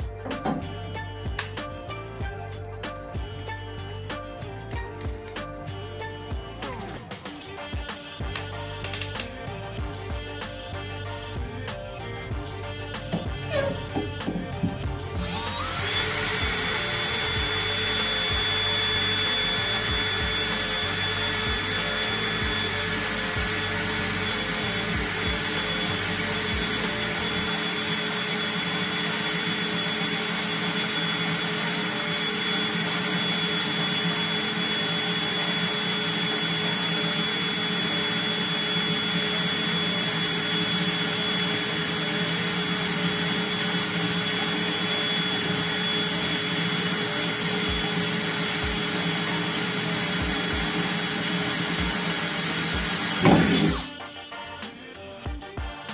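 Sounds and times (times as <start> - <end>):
drill boring into steel: 13.1 - 54.0.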